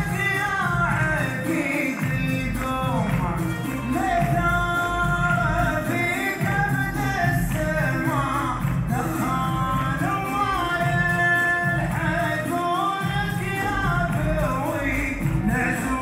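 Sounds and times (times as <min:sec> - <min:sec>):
amplified stage music: 0:00.0 - 0:16.0
person singing: 0:00.0 - 0:16.0.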